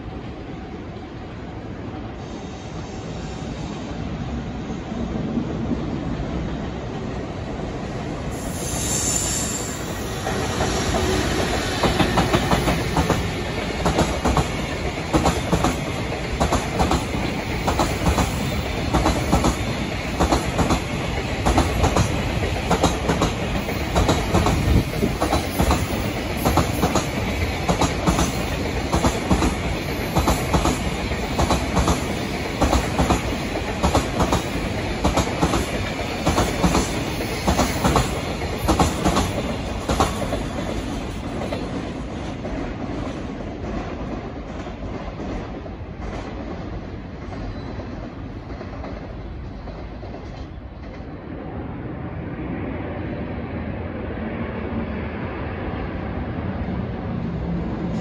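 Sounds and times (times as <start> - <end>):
train rumble: 0.0 - 58.0
train wheels clacking over rail joints: 10.2 - 45.4.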